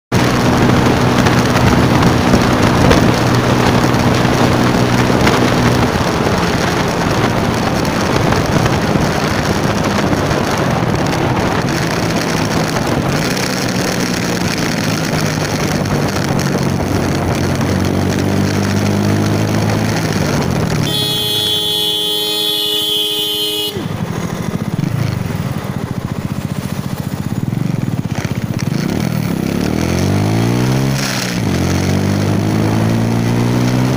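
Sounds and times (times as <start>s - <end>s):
motor scooter engine: 0.2s - 33.9s
horn blast: 20.8s - 24.1s.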